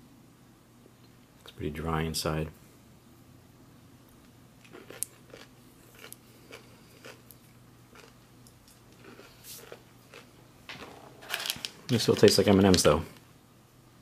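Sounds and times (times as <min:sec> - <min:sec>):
person chewing crunchy candy: 0:04.6 - 0:10.3.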